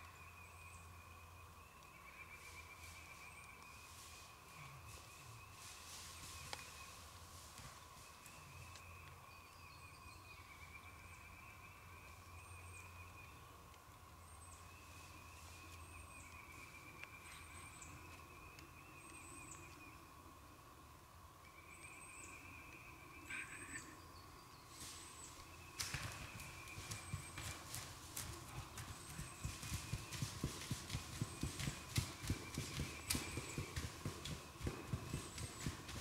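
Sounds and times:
songbirds chirping: 0:00.0 - 0:36.0
rustling in dry leaves: 0:02.4 - 0:08.8
wild turkey calls: 0:23.1 - 0:24.0.

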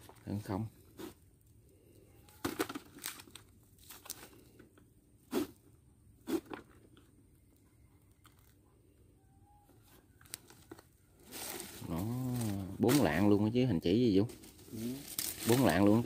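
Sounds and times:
feed sack crinkling and rustling: 0:02.3 - 0:04.6, 0:10.3 - 0:13.3, 0:14.3 - 0:16.0.

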